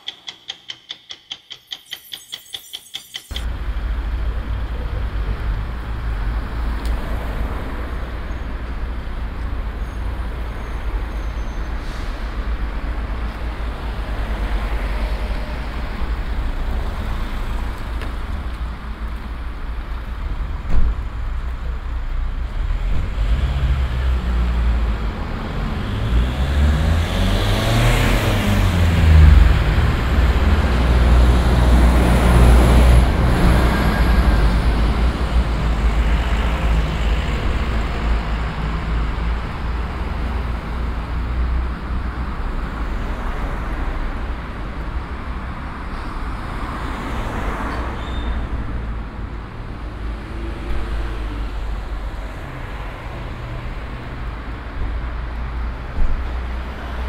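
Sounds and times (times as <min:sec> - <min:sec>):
sharp knock: 0:00.0 - 0:03.5
traffic rumble: 0:03.3 - 0:57.0.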